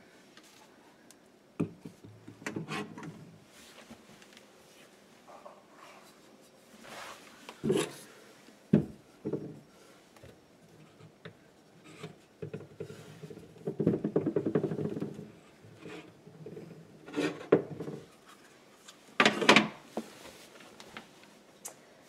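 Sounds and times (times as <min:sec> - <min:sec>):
bottles knocking on wood shelf: 0:13.7 - 0:15.2.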